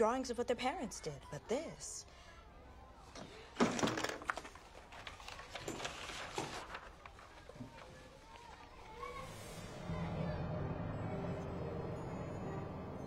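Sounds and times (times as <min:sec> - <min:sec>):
paper rustling and crinkling: 0:03.6 - 0:09.1.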